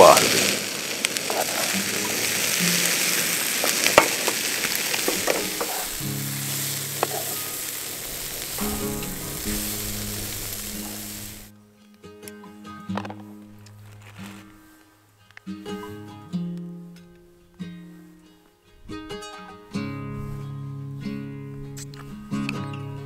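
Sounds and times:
potatoes sizzling in a pan: 0.0s - 11.5s
stirring clicks and scrapes: 0.2s - 6.1s, 6.8s - 8.7s
music with long low notes: 5.2s - 13.5s, 18.9s - 23.0s.

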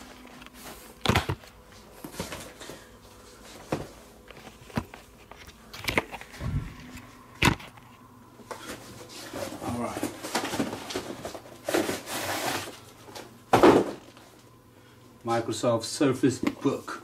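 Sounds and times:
cardboard box knocks and thumps: 13.5s - 14.0s.

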